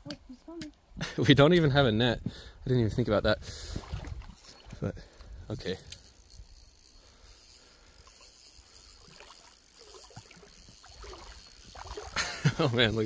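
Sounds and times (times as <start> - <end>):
water sloshing in stream: 3.6 - 6.4, 7.6 - 13.0.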